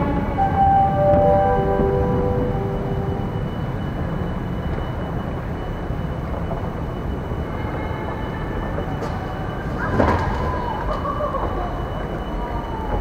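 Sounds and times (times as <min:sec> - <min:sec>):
terminal background rumble: 0:00.0 - 0:13.0
faint high tone: 0:00.4 - 0:04.3.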